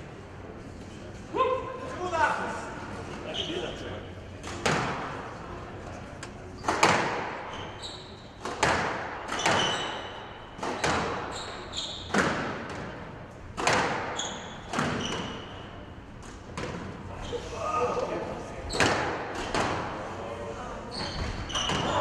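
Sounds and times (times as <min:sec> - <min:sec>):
squash ball struck: 0:06.6 - 0:07.5, 0:08.4 - 0:11.3, 0:12.0 - 0:15.5
shoes squeaking on court: 0:07.5 - 0:08.5, 0:09.3 - 0:12.2, 0:14.1 - 0:15.7, 0:20.9 - 0:22.0.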